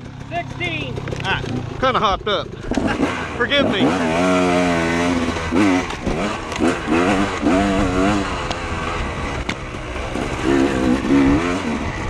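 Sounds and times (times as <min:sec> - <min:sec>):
dirt bike engine labouring: 0:00.0 - 0:12.0.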